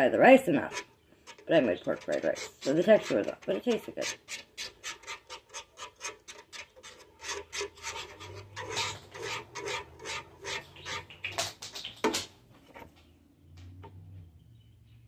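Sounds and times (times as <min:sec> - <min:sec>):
spoon stirring in a pot: 0:00.0 - 0:13.0.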